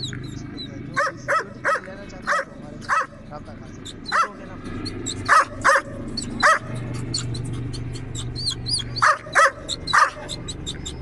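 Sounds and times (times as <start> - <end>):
dog barking: 1.0 - 3.2, 4.1 - 4.4, 5.2 - 6.8, 9.0 - 10.4.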